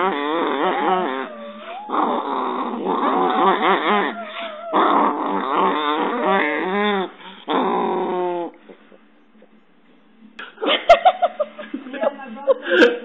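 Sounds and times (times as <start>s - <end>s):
small dog growling and snarling: 0.0s - 8.8s.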